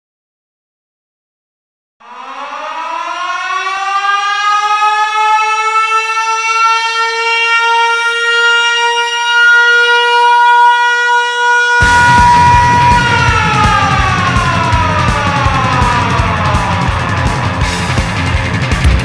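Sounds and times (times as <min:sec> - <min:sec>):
air-raid siren winding up: 0:02.0 - 0:18.9.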